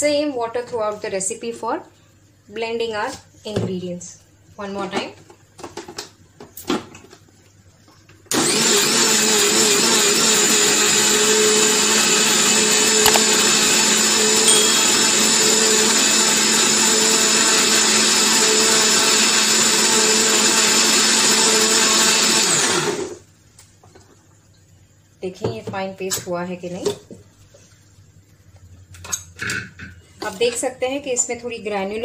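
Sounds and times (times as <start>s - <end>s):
mixer grinder motor running: 8.3s - 23.2s.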